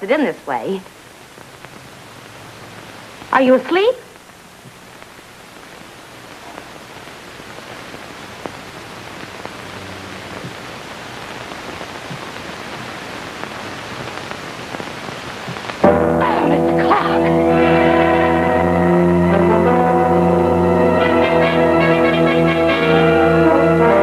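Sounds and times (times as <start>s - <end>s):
film soundtrack hiss: 0.0s - 24.0s
music on a held chord: 15.8s - 24.0s.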